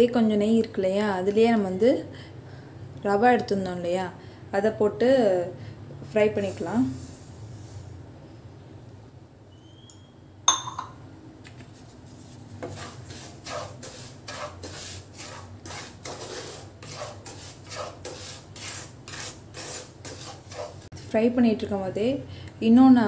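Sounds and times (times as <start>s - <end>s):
sharp metal clink: 10.5s - 11.0s
wooden spatula scraping a pan: 11.8s - 20.9s.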